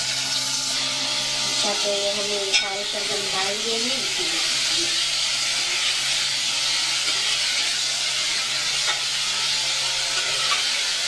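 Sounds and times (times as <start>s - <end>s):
vegetables sizzling in oil: 0.0s - 11.0s
steel spoon scraping pot: 6.8s - 11.0s.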